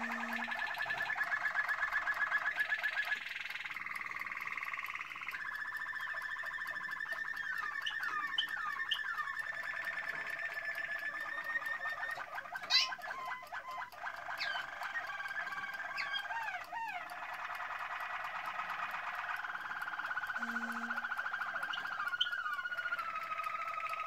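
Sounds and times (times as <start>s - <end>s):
canaries singing trills: 0.0s - 24.0s.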